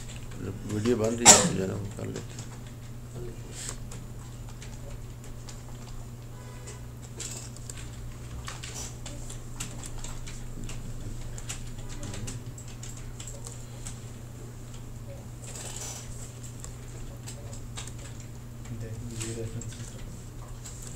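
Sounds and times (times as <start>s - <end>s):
steady low hum: 0.0s - 20.9s
keyboard and mouse clicking: 7.1s - 14.0s.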